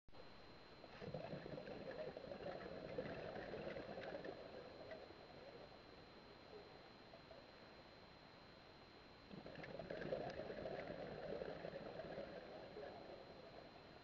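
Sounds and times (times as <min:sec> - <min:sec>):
faint high whine: 0:00.1 - 0:14.0
underwater air bubbling: 0:00.9 - 0:05.9, 0:09.3 - 0:14.0.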